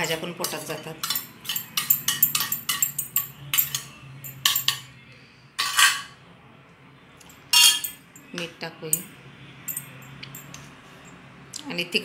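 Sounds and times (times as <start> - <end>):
spoon scraping steel bowl: 0.0 - 4.8, 5.6 - 6.1
spoon clinking on steel bowls: 0.0 - 5.0, 5.6 - 6.1, 7.3 - 9.1.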